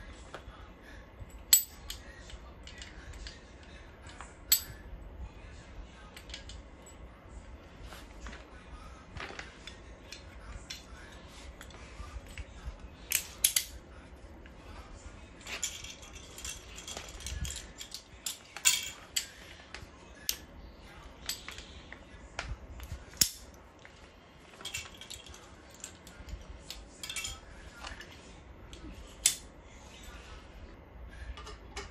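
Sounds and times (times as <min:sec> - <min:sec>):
metal parts clicking and clinking: 0:01.3 - 0:04.8, 0:06.1 - 0:07.0, 0:11.6 - 0:13.8, 0:15.4 - 0:19.4, 0:21.2 - 0:21.8, 0:24.5 - 0:29.5.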